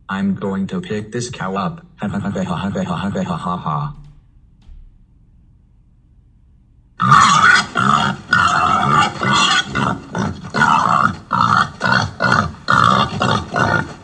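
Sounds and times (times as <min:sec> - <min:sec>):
pig squealing: 0:07.0 - 0:14.0.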